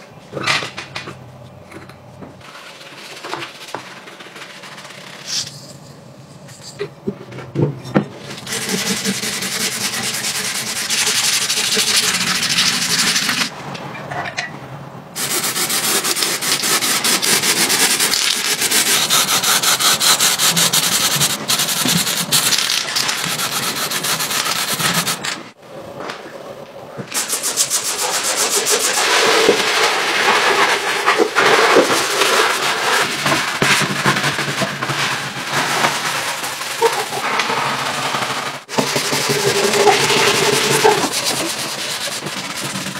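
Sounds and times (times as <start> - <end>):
sanding metal wheel rims: 8.2 - 13.5, 15.2 - 25.5, 27.2 - 42.9.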